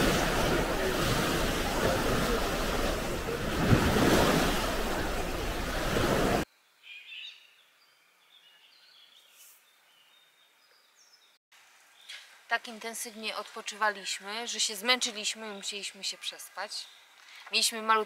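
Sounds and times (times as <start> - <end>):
wind on microphone: 0.0 - 6.4
sea surf: 0.0 - 6.5.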